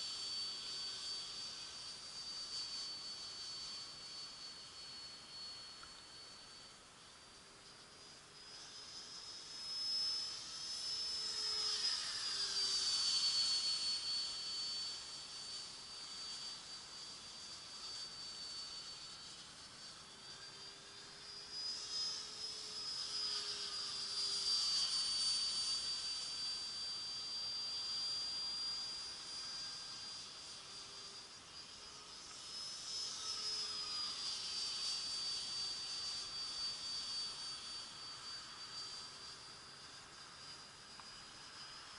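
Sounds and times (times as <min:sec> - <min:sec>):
model aircraft motor whining: 0:00.0 - 0:41.9.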